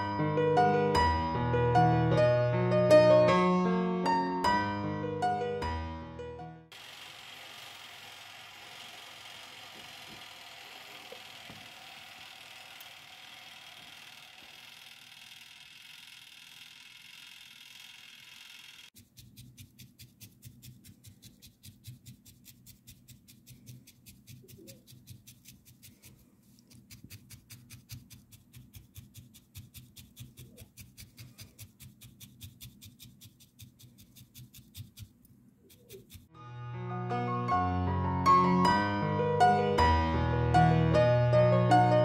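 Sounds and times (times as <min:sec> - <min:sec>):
felting needle stabbing wool: 0:18.9 - 0:36.3.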